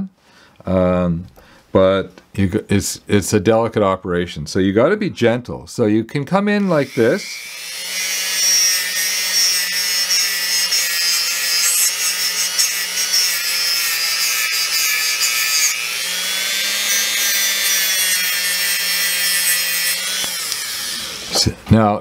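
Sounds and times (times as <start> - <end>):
rotary tool motor whining: 6.8 - 21.4.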